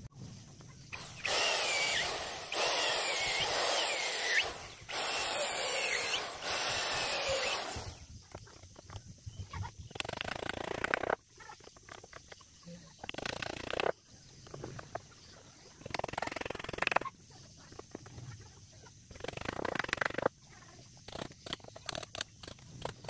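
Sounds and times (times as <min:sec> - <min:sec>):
electric drill boring into wood: 0:00.9 - 0:08.0.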